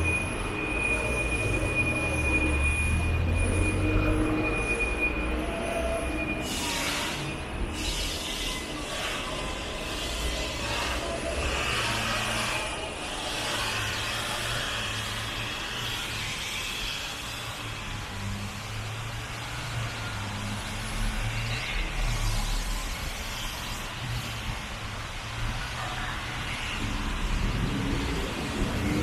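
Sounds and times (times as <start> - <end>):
low rumble of vehicles: 0.0 - 29.0
hiss of passing vehicles: 6.1 - 29.0.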